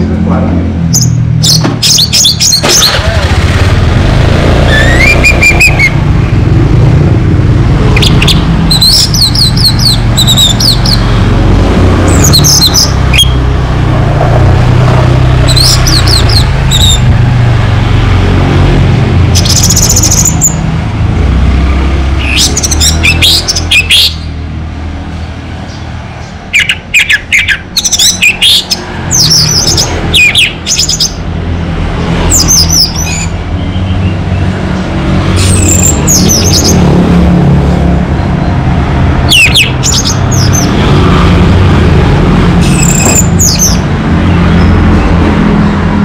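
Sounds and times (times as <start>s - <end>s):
low rumble of street traffic: 0.0s - 46.0s.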